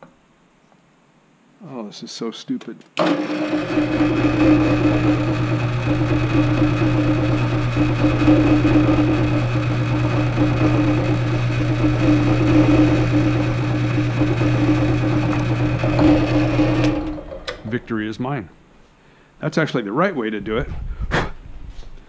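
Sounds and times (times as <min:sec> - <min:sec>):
drill press humming and whining: 0:03.0 - 0:17.8.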